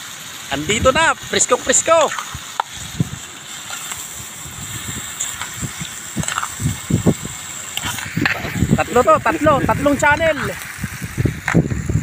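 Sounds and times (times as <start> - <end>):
food simmering and bubbling in pan: 0.0 - 12.0
spoon stirring in metal pan: 5.2 - 6.8.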